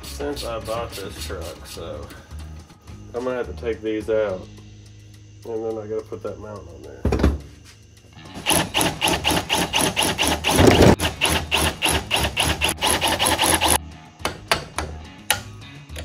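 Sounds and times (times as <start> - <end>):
hammer striking metal: 14.2 - 15.6.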